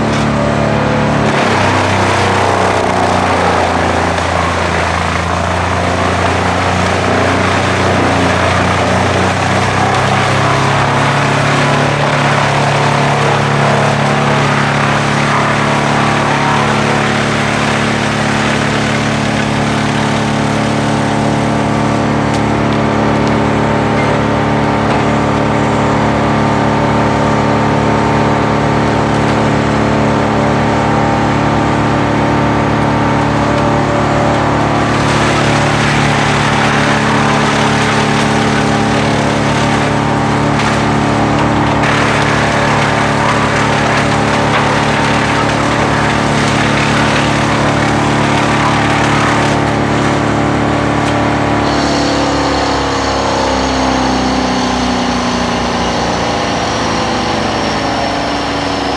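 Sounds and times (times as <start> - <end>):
wood being chipped: 0.0 - 21.5, 33.5 - 52.6
tractor engine running: 0.0 - 58.9.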